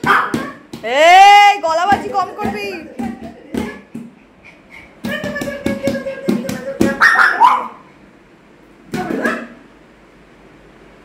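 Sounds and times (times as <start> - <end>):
dog barking: 0.0 - 0.6, 7.0 - 7.8
hand drumming on plastic canister: 1.7 - 4.2, 5.0 - 7.0.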